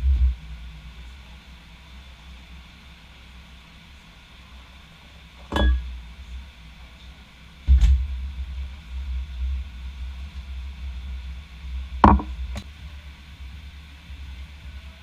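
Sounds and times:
steady low rumble: 0:00.0 - 0:03.6, 0:05.6 - 0:15.0
containers knocking on worktop: 0:12.0 - 0:12.3.

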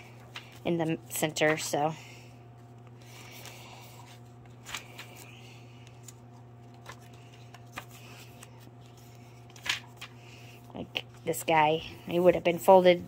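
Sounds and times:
low steady hum: 0:00.0 - 0:13.0
paper pages rustling: 0:00.2 - 0:01.8, 0:02.6 - 0:11.3.

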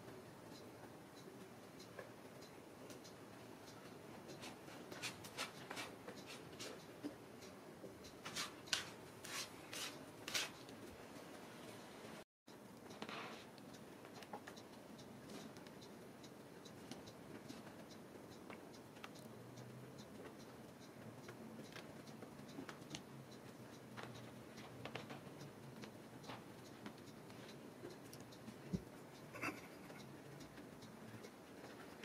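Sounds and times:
claws scuffing rug: 0:08.3 - 0:10.5.

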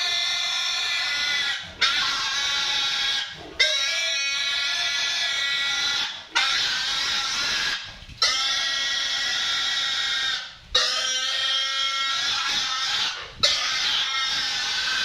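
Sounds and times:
piglet squealing: 0:00.0 - 0:15.0.

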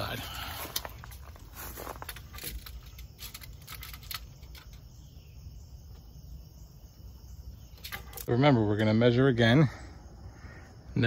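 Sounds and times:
insects chirping: 0:00.0 - 0:11.0.

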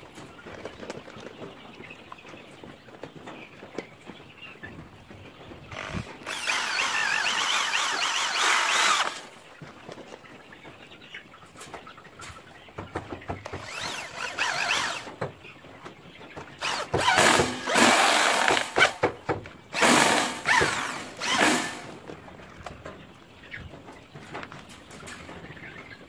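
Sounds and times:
electric drill motor whining: 0:05.7 - 0:09.3, 0:13.5 - 0:15.1, 0:16.6 - 0:19.0, 0:19.7 - 0:22.0.

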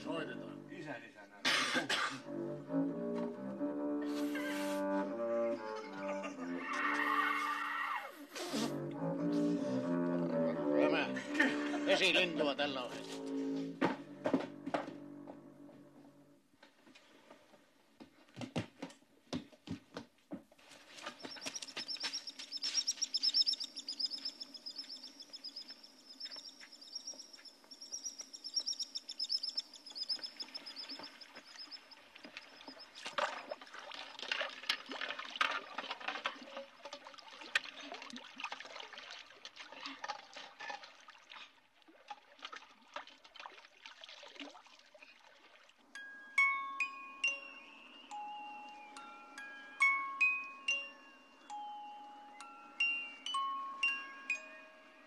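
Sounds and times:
bird warbling: 0:21.1 - 0:32.9.

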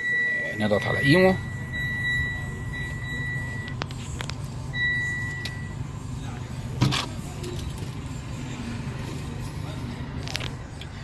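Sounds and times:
car warning chime beeps: 0:00.0 - 0:03.8, 0:04.7 - 0:05.8.

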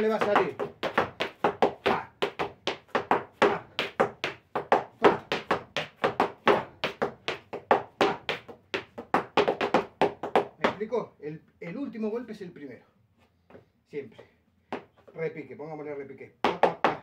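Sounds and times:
boot heels striking the floor: 0:00.0 - 0:10.9, 0:14.7 - 0:15.1.

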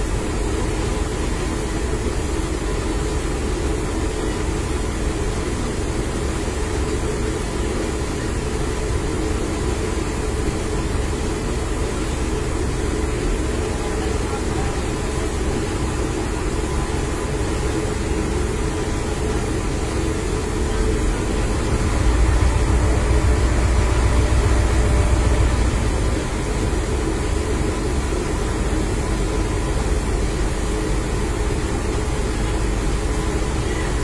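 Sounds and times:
fire truck engine running: 0:00.0 - 0:34.0.

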